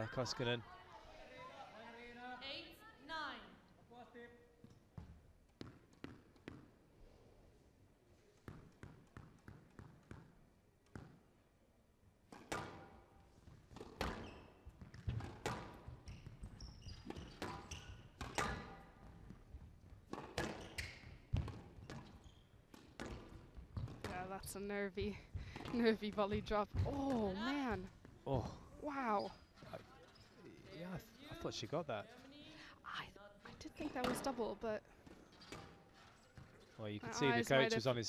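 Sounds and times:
squash ball hitting rackets and walls: 5.0s - 6.8s, 8.4s - 11.4s, 12.2s - 24.4s, 25.1s - 28.2s, 33.8s - 36.7s
shoes squeaking on wooden floor: 14.1s - 15.2s, 15.8s - 19.6s, 20.3s - 24.2s.

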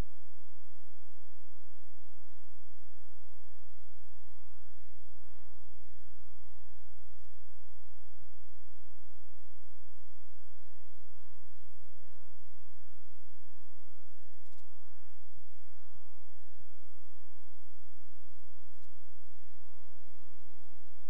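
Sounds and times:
electrical hum: 0.0s - 21.0s
faint ticks: 14.3s - 14.8s, 18.7s - 19.0s.

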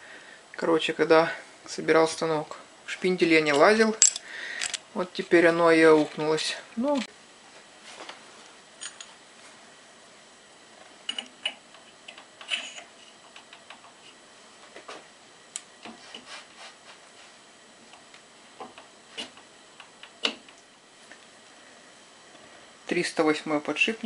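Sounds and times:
metal parts clicking and rubbing: 12.1s - 13.3s.

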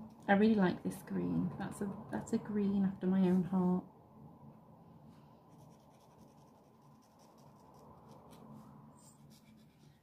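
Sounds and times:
felt pen scratching on paper: 5.5s - 10.0s.

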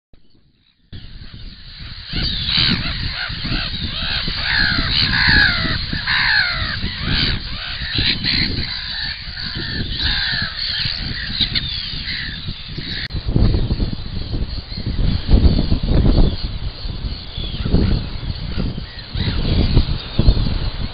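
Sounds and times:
seabirds calling: 0.5s - 20.9s.

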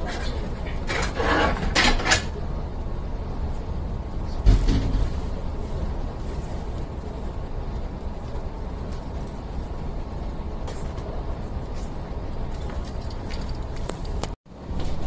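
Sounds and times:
train low rumble: 0.0s - 15.0s
heavy door thud: 4.4s - 5.1s.

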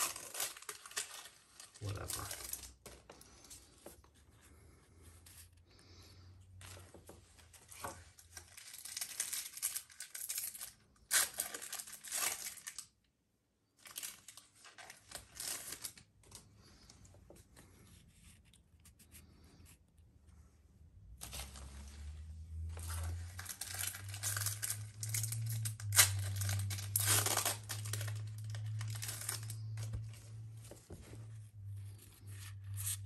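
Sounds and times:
foil wrapper tearing: 0.0s - 2.7s, 8.4s - 12.9s, 23.1s - 29.9s.

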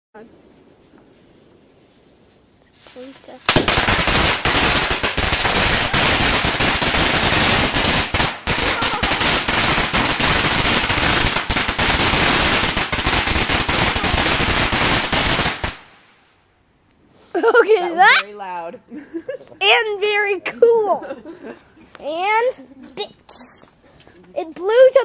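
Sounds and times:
firecrackers rapid bangs: 3.5s - 16.2s.

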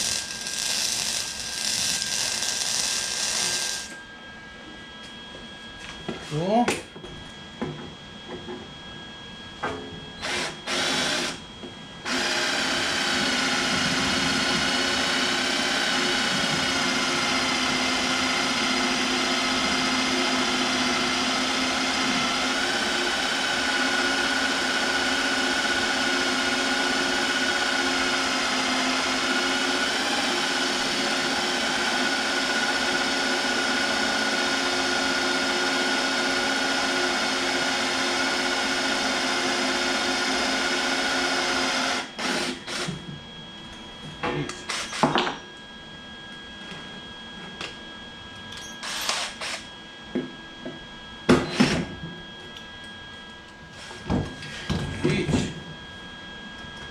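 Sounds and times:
welding arc buzzing: 0.0s - 4.0s, 10.2s - 11.4s.

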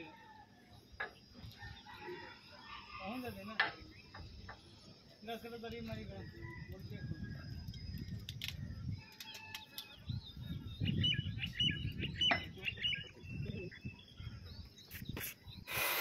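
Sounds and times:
wind on microphone: 6.0s - 9.2s, 10.0s - 16.0s
small birds chirping: 7.5s - 16.0s.

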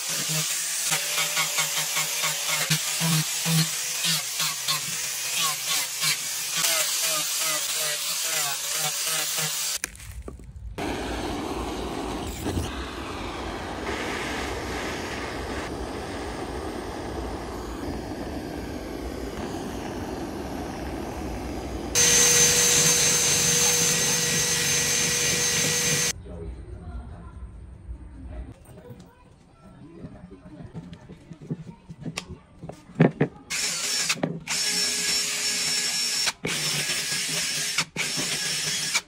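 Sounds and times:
angle grinder sanding wood: 0.0s - 9.8s, 18.4s - 26.1s
blowtorch flame rushing: 10.8s - 26.1s
cordless drill whining: 10.9s - 26.1s, 33.5s - 39.0s.

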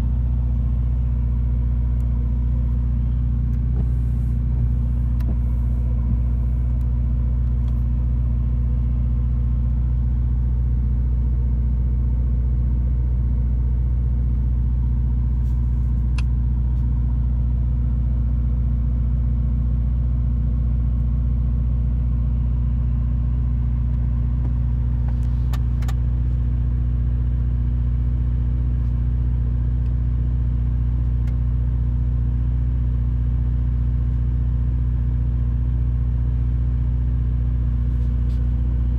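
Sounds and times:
car engine idling: 0.0s - 38.9s.

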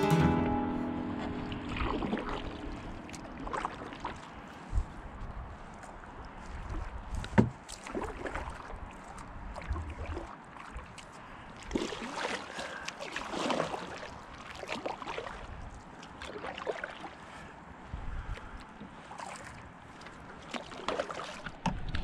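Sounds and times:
paddle swishing and dripping: 0.4s - 22.0s.

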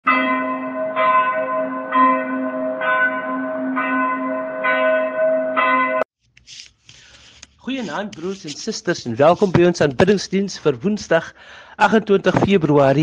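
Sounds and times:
church bell ringing: 0.1s - 6.1s.

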